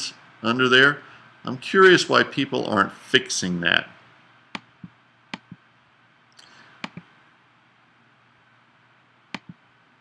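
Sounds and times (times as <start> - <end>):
computer mouse double-clicks: 4.6 - 5.6, 6.8 - 7.0, 9.3 - 9.6.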